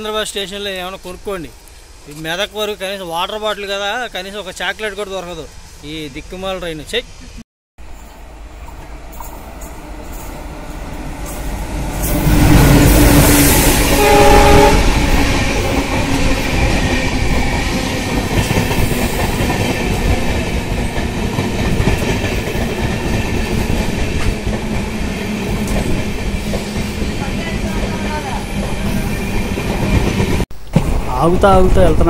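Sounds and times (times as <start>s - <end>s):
locomotive passing: 0.0s - 32.0s
train horn blast: 12.0s - 15.8s.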